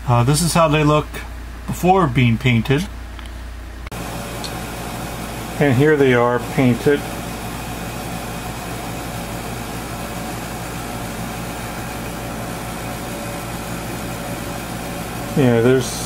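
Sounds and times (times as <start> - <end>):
machine drone: 3.9 - 16.0.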